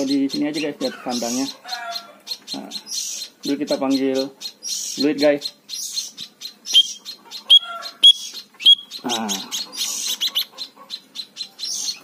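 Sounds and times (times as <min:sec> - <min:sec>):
young bird chirping: 0:00.0 - 0:12.0
bird whistle-like calls: 0:02.6 - 0:12.0.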